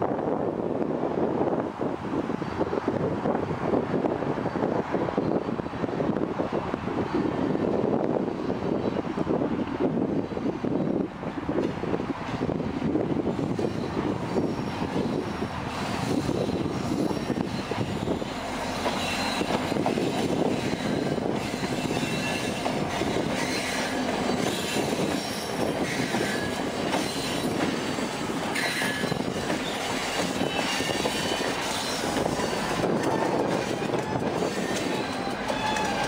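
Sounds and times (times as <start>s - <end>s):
diesel locomotives: 0.0s - 36.0s
freight train rumbling and clattering: 0.0s - 36.0s
high-pitched wheel squeals: 13.5s - 36.0s.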